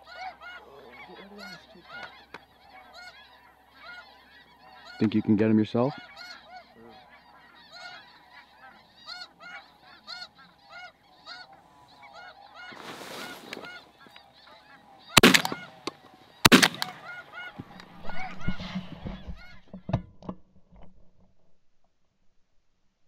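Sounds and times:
geese honking: 0:00.0 - 0:19.7
shotgun shots: 0:15.2 - 0:17.2.

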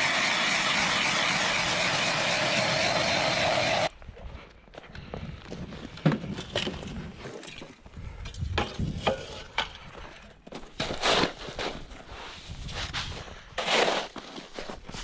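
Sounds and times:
snow shovel scraping and knocking: 0:10.6 - 0:15.0.

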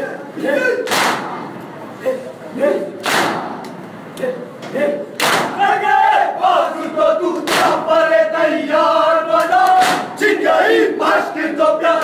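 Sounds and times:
chest-beating slaps: 0:00.8 - 0:01.4, 0:03.0 - 0:03.8, 0:05.2 - 0:05.6, 0:07.4 - 0:07.8, 0:09.6 - 0:10.2
men chanting in unison: 0:04.2 - 0:12.0.

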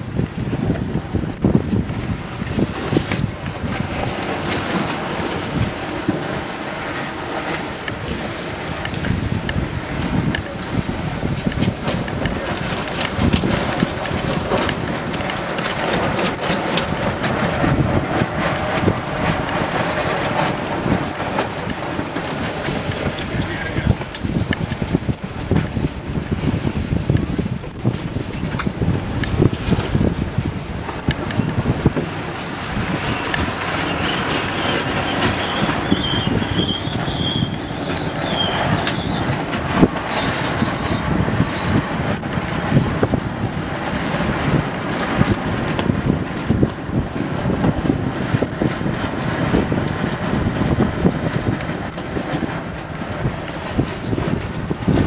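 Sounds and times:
water rushing along hull: 0:00.0 - 0:55.0
wind buffeting microphone: 0:00.0 - 0:55.0
high whistling squeaks: 0:33.0 - 0:41.7.

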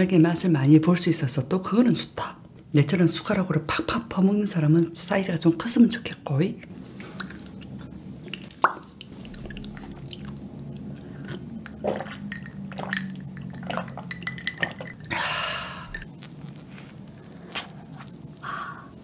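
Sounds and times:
low steady hum: 0:00.0 - 0:19.0
gulping a drink: 0:07.2 - 0:16.1.

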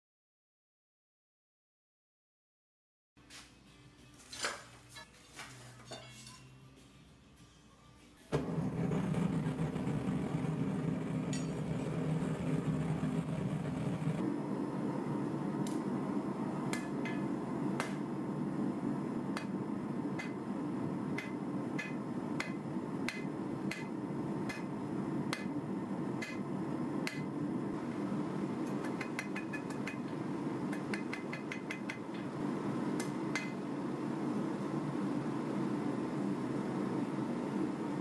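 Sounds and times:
gas forge burner rushing: 0:08.3 - 0:38.0
hammer ringing on anvil: 0:11.3 - 0:11.7.

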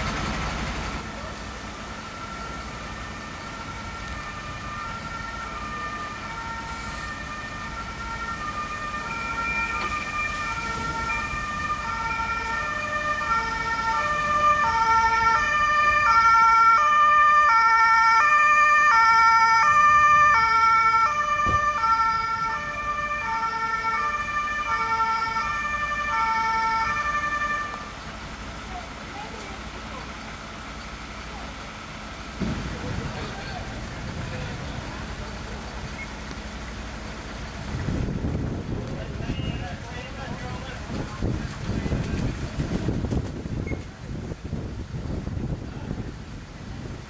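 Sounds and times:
two-tone siren: 0:02.0 - 0:27.9.

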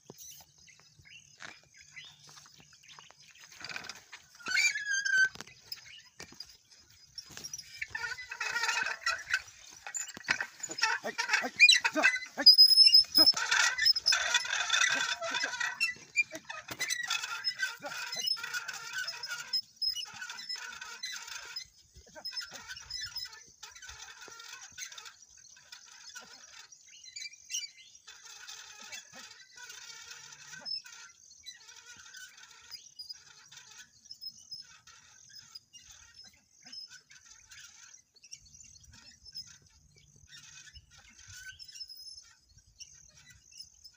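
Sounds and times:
metal plough clanking and scraping: 0:00.0 - 0:43.9.

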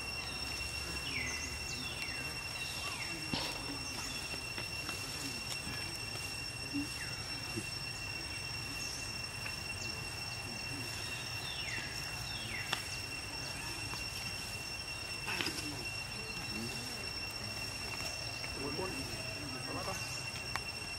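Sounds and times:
high-pitched insect drone: 0:00.0 - 0:20.9.

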